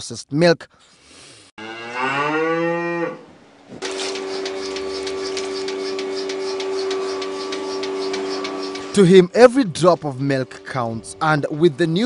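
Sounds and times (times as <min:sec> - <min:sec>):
cow mooing: 0:01.6 - 0:03.3
milking machine vacuum hum: 0:03.8 - 0:09.0
pulsator clicking: 0:03.8 - 0:09.2.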